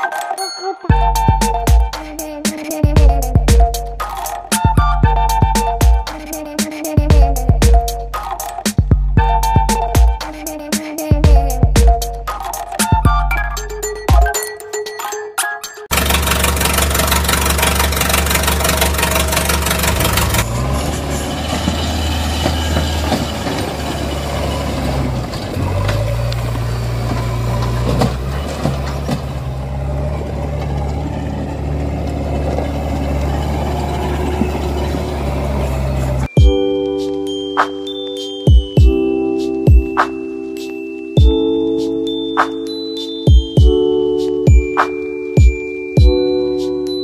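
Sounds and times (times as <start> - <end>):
toy engine hum: 15.9 - 21.4.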